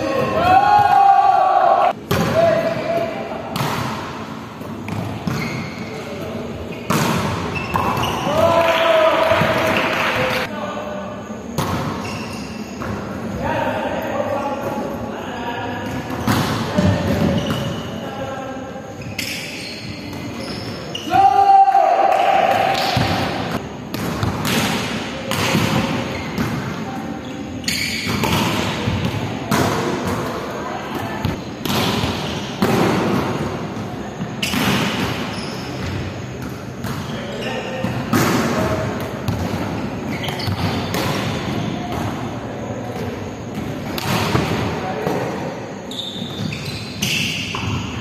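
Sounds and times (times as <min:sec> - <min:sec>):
volleyballs thudding in a hall: 0:00.0 - 0:48.0
volleyball thumps echoing: 0:06.9 - 0:08.6, 0:37.8 - 0:42.3.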